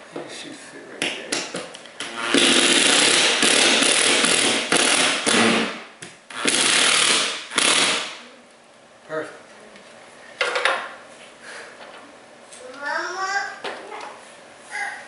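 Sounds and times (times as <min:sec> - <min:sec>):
power drill whirring: 0:02.0 - 0:05.7, 0:06.3 - 0:08.0.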